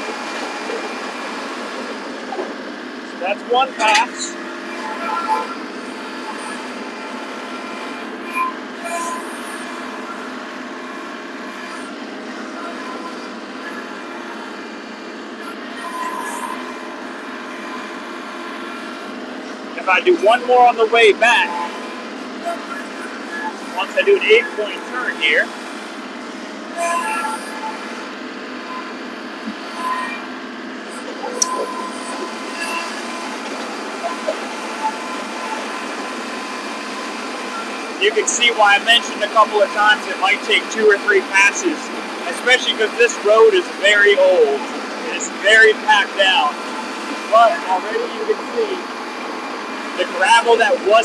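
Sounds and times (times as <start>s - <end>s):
distant tractor diesel engine: 18.9s - 26.8s, 28.0s - 51.0s.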